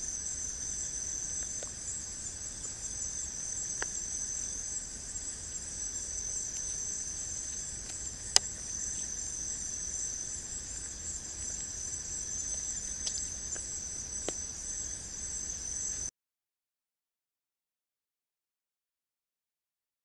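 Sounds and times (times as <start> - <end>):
night insects trilling: 0.0 - 16.1
faint ticks: 12.4 - 14.4.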